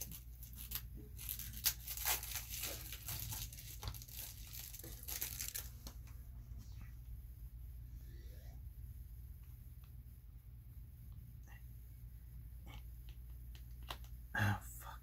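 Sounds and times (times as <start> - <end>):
wrapping crinkling and tearing: 0.0 - 6.1.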